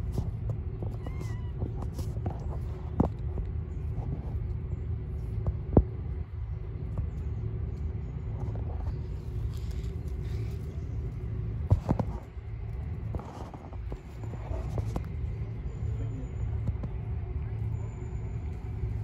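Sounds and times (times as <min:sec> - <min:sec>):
faint hum: 0:00.0 - 0:19.0
low motor rumble: 0:00.0 - 0:19.0.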